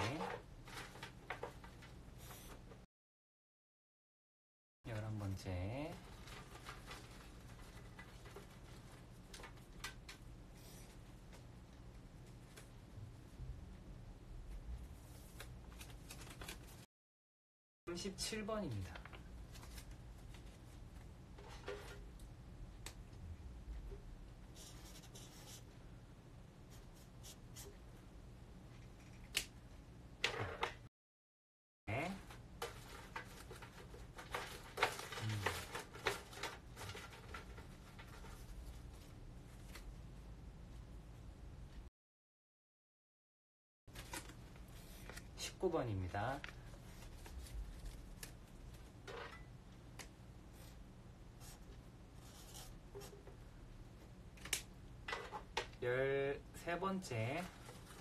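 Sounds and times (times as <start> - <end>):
paper rustling: 5.9 - 11.0, 15.0 - 16.9, 18.8 - 20.8, 32.3 - 39.9, 43.9 - 45.4, 46.4 - 48.9, 57.3 - 58.0.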